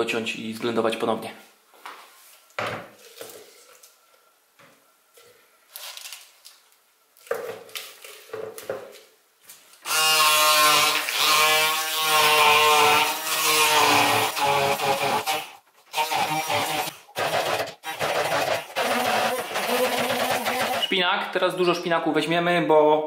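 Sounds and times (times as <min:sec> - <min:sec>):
stick blender running: 0:09.9 - 0:21.0.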